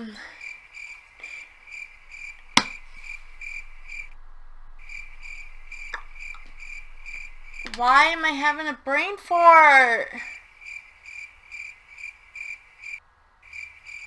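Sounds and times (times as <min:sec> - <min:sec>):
cricket chirping: 0:00.0 - 0:08.9, 0:10.2 - 0:14.0.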